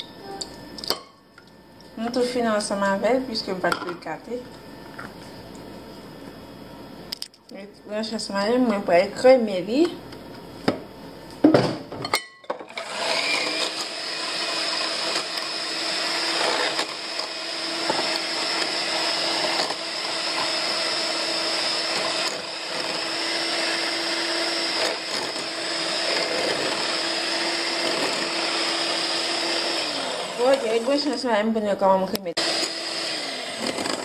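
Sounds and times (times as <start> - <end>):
electric hand mixer whisking: 12.7 - 31.4, 32.4 - 34.0.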